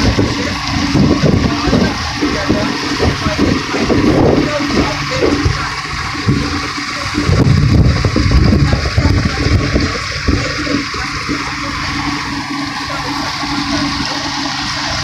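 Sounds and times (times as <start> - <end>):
outboard motor running: 0.0 - 15.0
water churning in wake: 0.0 - 15.0.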